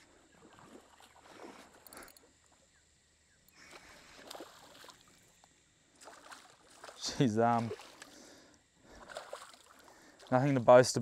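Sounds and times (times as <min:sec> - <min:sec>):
fish splashing at water surface: 0:08.9 - 0:10.0.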